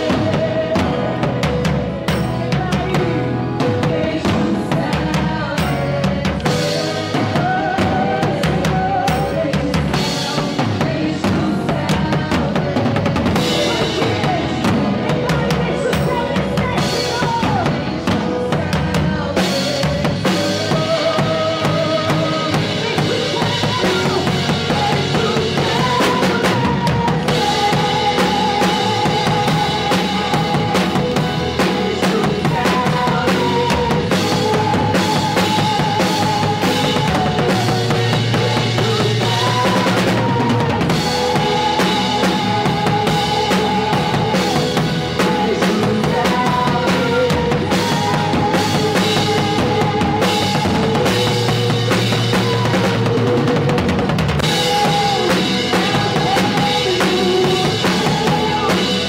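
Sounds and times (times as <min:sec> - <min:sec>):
drum kit steady beat: 0:00.0 - 0:59.0
live worship band: 0:00.0 - 0:59.0.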